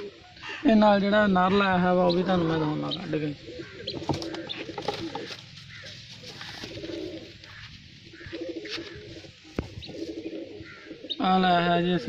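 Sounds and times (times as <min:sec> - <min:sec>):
pigeons cooing: 0:00.0 - 0:00.6, 0:01.2 - 0:12.0
wings fluttering: 0:03.9 - 0:10.8.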